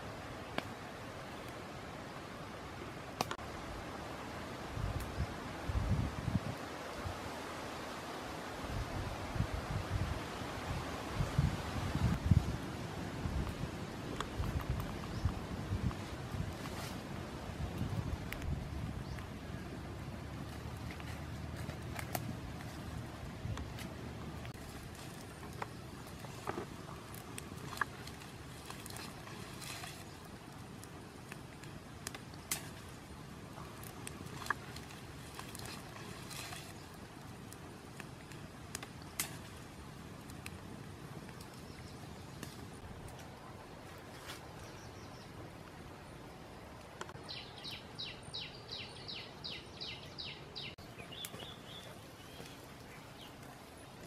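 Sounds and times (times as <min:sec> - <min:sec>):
outdoor background hiss: 0:00.0 - 0:54.0
wood fire crackling and popping: 0:17.6 - 0:19.3, 0:20.4 - 0:36.1, 0:36.9 - 0:41.6.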